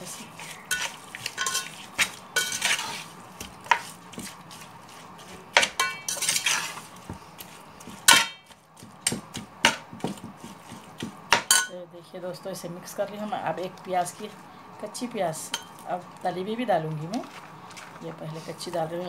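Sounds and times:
metal spoon scraping a metal pot: 0.4s - 3.1s, 5.6s - 6.8s.

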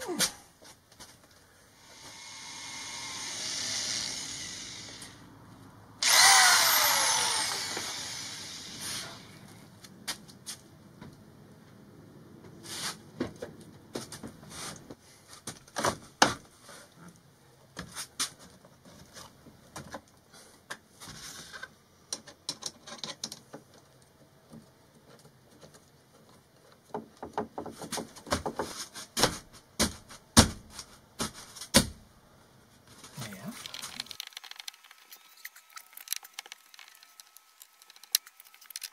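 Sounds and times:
taps and knocks on a cabinet: 26.9s - 32.0s.

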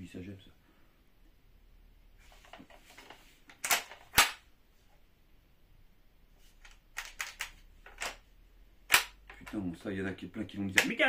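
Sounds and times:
replica rifle mechanical snaps: 8.9s - 9.5s.

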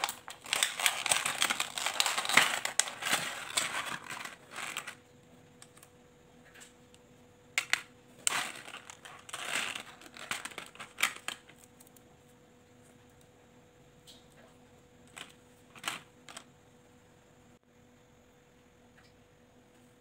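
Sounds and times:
plastic wrapping crinkling: 0.0s - 5.0s, 7.6s - 11.8s.

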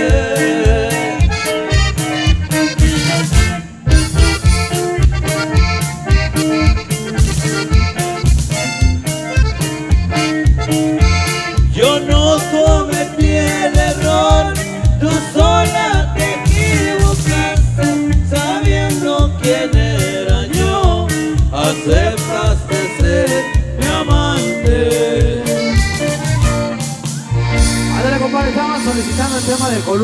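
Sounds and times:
accordion melody: 0.0s - 30.0s
bass and drums beat: 0.0s - 30.0s.

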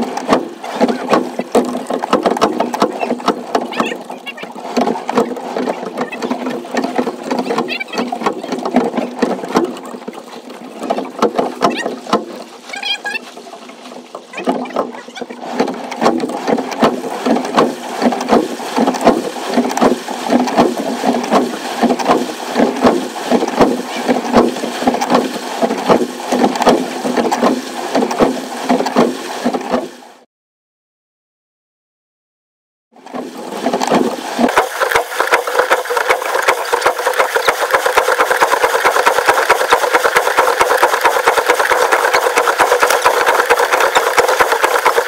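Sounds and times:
water slapping against a hull: 0.0s - 30.3s, 32.9s - 45.0s.

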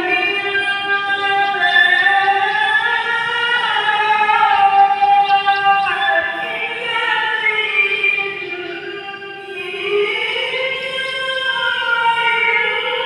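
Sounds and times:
person chanting recitation: 0.0s - 13.0s.

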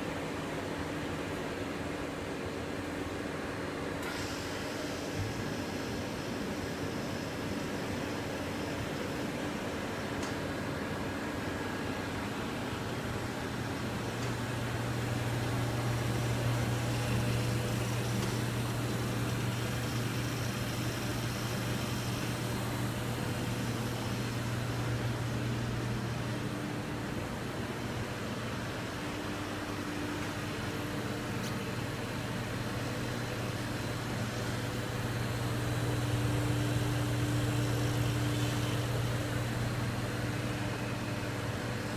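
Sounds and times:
fans hissing: 4.0s - 41.9s
machine humming: 11.8s - 41.9s.

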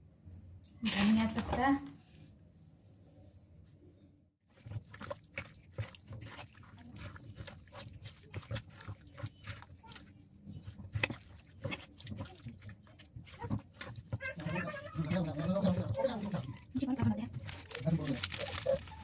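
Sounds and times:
hands squelching in marinade: 4.5s - 19.0s.

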